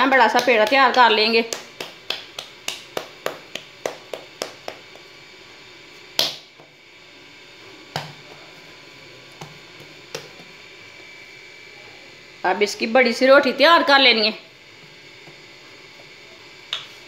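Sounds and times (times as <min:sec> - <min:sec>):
dough slapped between palms: 0:00.2 - 0:05.1, 0:06.1 - 0:06.6, 0:07.9 - 0:08.2.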